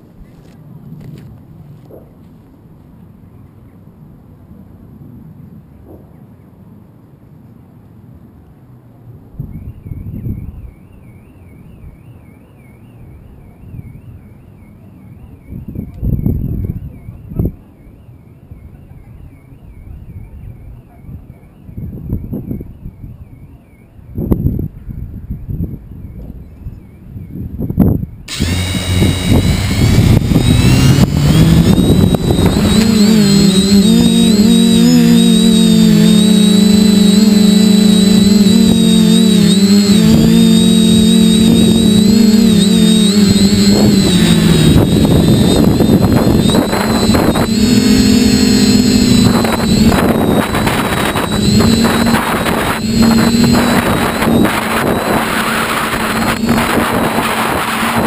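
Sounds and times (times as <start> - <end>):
model aircraft motor whine: 28.3 - 58.0.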